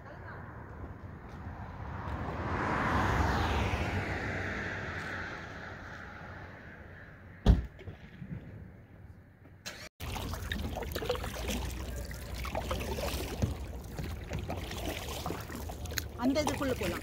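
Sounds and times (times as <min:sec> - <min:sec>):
running water splashing: 0:10.0 - 0:17.0.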